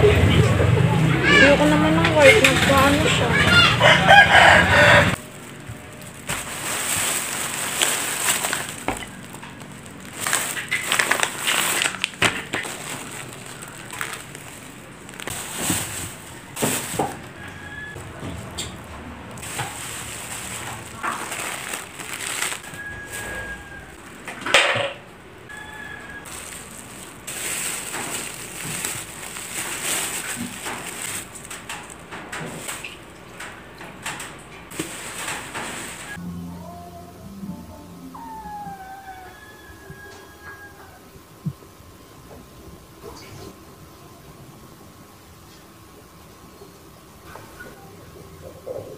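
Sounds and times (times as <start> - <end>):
plastic bag crinkling: 3.8 - 24.1, 25.5 - 33.4, 34.7 - 36.2.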